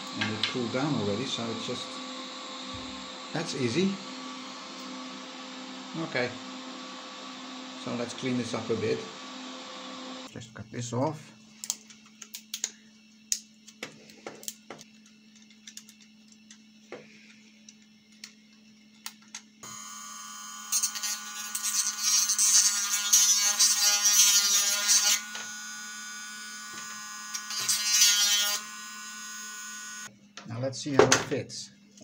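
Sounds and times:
rotary tool grinding plastic: 0:20.6 - 0:30.1.

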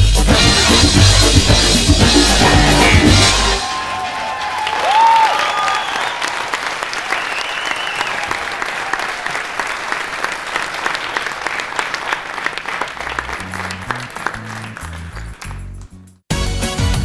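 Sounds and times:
low music notes: 0:00.0 - 0:03.6
audience applauding: 0:00.7 - 0:16.0.

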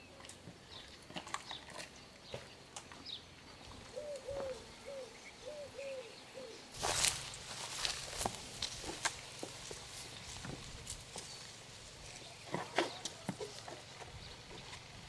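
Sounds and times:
bird cooing: 0:03.7 - 0:06.8.

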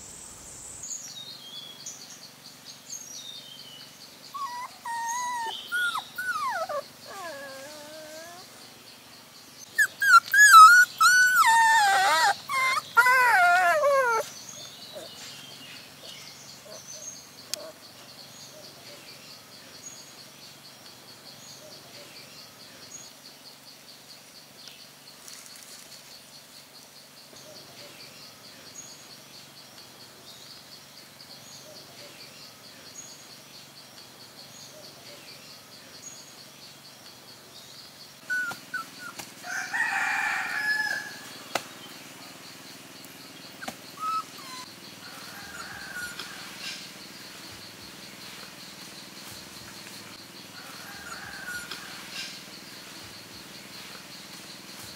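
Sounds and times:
rooster crowing: 0:39.4 - 0:41.3, 0:45.0 - 0:46.5, 0:50.6 - 0:52.0.

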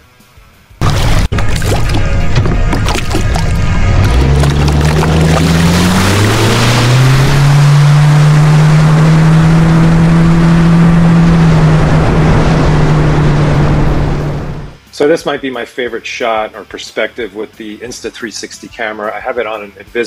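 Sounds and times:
outboard motor running: 0:00.8 - 0:14.6
wind and water rushing: 0:00.8 - 0:14.7.

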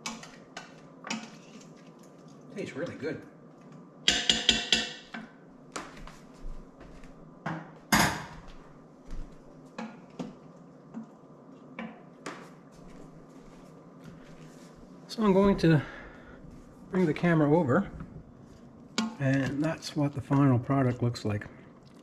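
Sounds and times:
spoon knocking on steel pot: 0:04.1 - 0:05.2.

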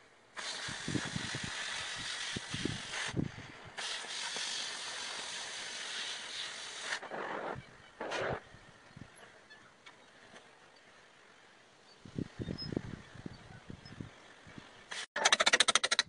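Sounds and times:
cutting torch hissing: 0:00.4 - 0:08.4.

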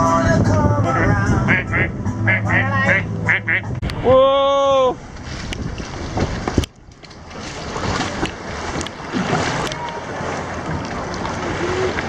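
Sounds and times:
wind on microphone: 0:00.0 - 0:09.9
water sloshing around wading people: 0:05.0 - 0:12.0.

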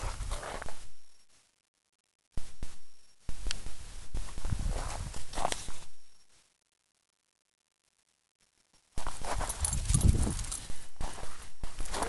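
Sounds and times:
snow crunching under paws: 0:00.0 - 0:00.9, 0:04.3 - 0:05.9, 0:09.0 - 0:12.0.

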